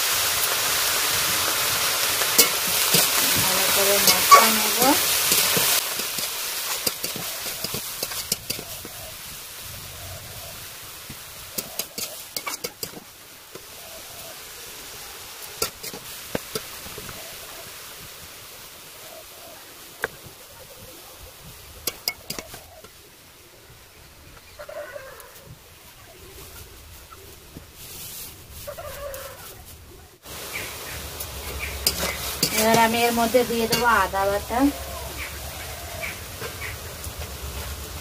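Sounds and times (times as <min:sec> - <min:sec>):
food sizzling: 0:00.0 - 0:25.6, 0:27.8 - 0:38.0
spatula clinking and scraping pan: 0:02.2 - 0:09.1, 0:11.5 - 0:13.1, 0:15.5 - 0:17.1, 0:21.8 - 0:22.7, 0:31.5 - 0:34.7
chickens clucking: 0:02.2 - 0:10.7, 0:11.4 - 0:17.8, 0:30.5 - 0:37.1.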